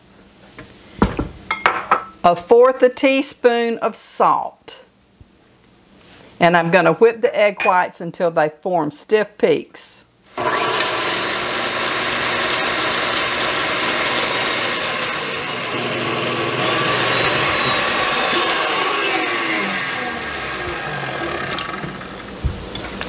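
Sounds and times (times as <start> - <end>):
stand mixer whisking: 10.4 - 22.4.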